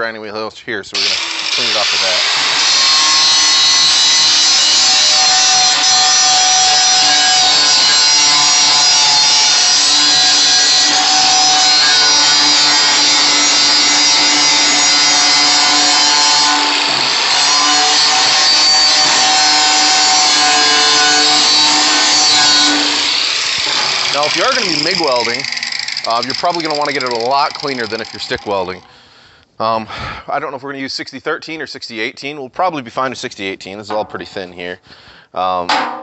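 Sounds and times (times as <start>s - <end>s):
angle grinder grinding steel: 1.0s - 29.0s.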